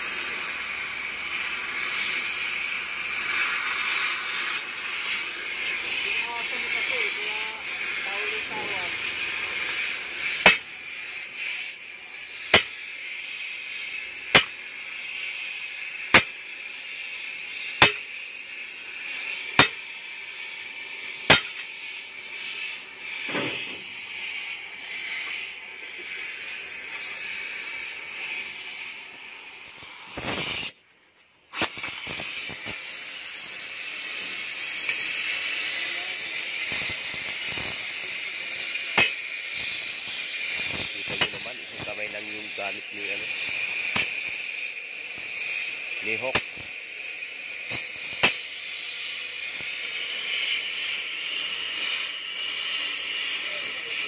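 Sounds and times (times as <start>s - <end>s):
cutting torch hissing: 0.0s - 30.8s, 31.5s - 54.0s
sledgehammer striking steel: 10.2s - 10.8s, 12.5s - 12.8s, 14.3s - 14.7s, 16.1s - 16.4s, 17.8s - 18.1s, 19.6s - 19.9s, 21.3s - 21.7s, 39.0s - 39.3s.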